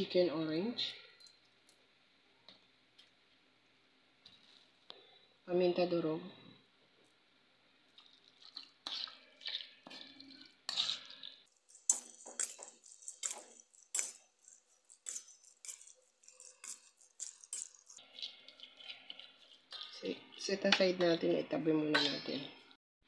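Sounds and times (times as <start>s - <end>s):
spoon scraping metal bowl: 8.4s - 21.3s, 21.9s - 22.5s.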